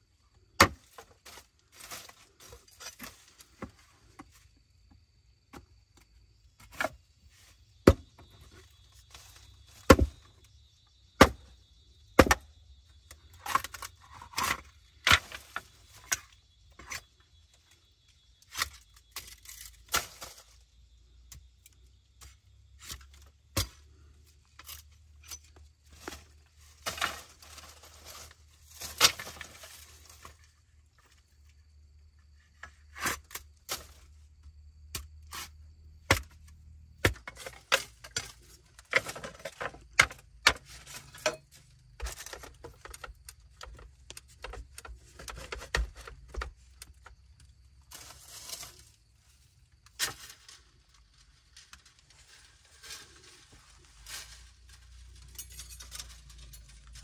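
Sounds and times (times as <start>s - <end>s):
scraping and rustling: 47.8s - 49.0s.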